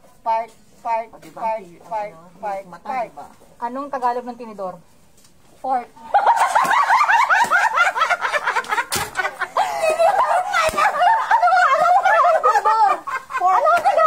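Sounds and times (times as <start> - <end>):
women laughing: 6.0 - 14.0.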